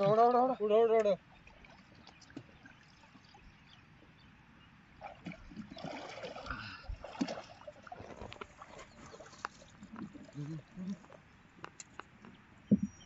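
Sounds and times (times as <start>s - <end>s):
water splashing and dripping: 1.0s - 3.5s, 5.0s - 12.8s.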